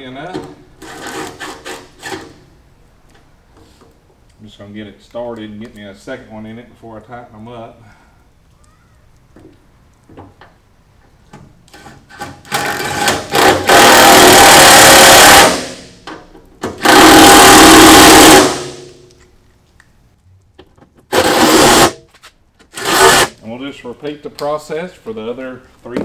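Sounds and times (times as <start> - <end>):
impact driver hammering: 12.5 - 15.9, 16.6 - 18.9, 21.2 - 22.0, 22.8 - 23.3.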